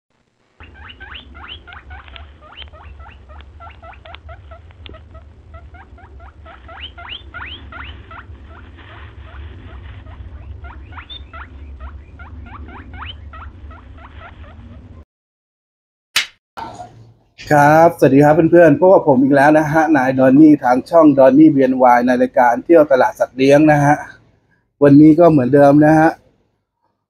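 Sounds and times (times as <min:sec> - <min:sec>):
steady low hum: 0:00.2 - 0:15.0
small birds chirping: 0:00.6 - 0:14.7.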